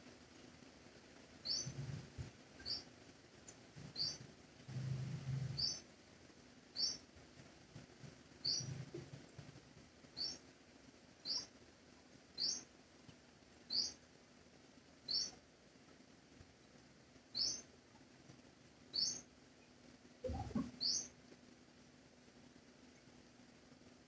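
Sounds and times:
faint rain hiss: 0.0 - 24.0
bird chirping: 1.4 - 2.0, 2.6 - 2.9, 3.8 - 5.9, 6.7 - 7.1, 8.4 - 9.1, 10.2 - 10.4, 11.2 - 11.5, 12.4 - 12.7, 13.7 - 14.0, 15.0 - 15.4, 17.3 - 17.7, 18.9 - 19.3, 20.2 - 21.2.

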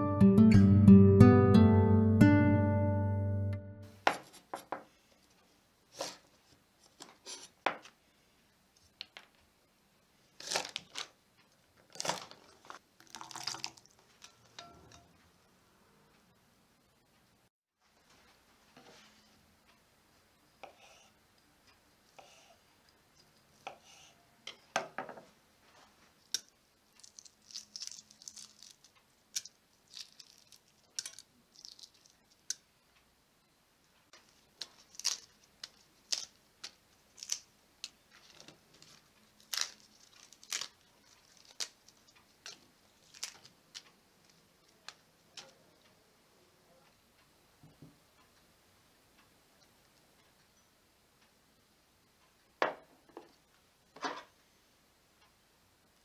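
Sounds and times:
eggshells cracking and peeling: 10.4 - 11.2, 11.9 - 14.3, 26.3 - 32.6, 34.6 - 45.5.

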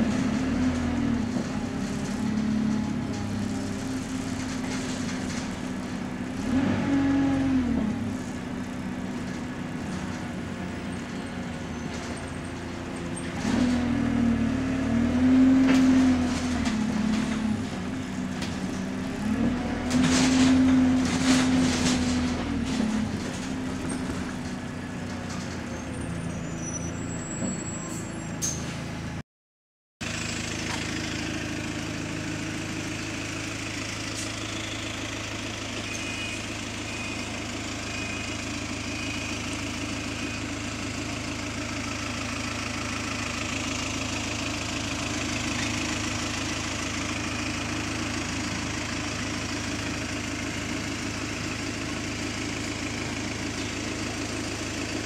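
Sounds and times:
bus diesel engine accelerating: 0.0 - 29.2, 30.0 - 55.0
bus engine idling: 30.0 - 55.0.

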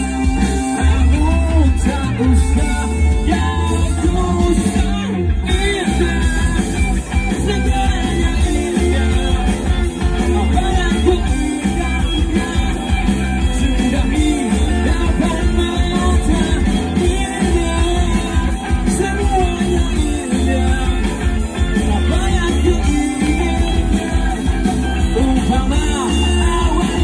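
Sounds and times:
lead singer singing: 0.0 - 27.0
rock band playing: 0.0 - 27.0.

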